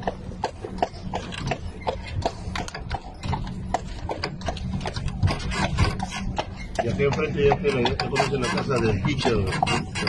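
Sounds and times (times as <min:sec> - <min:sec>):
low background rumble: 0:00.0 - 0:10.0.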